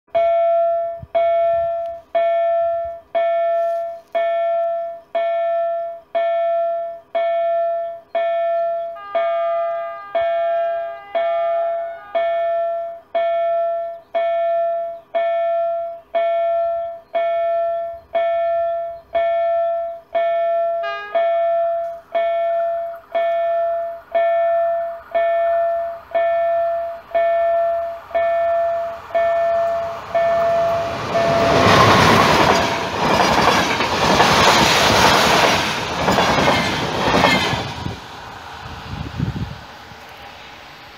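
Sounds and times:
crossing warning bell ringing: 0.1 - 34.6
approaching train rumble: 16.5 - 40.9.

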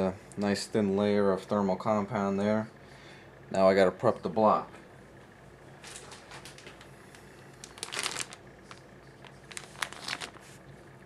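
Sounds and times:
plastic bag crinkling: 5.8 - 10.7.

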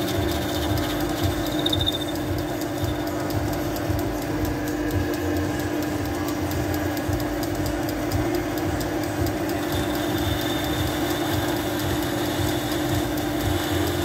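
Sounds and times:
thin high whine: 0.0 - 3.7
fast even ticking: 0.0 - 14.0
metal lathe running: 0.0 - 14.0.

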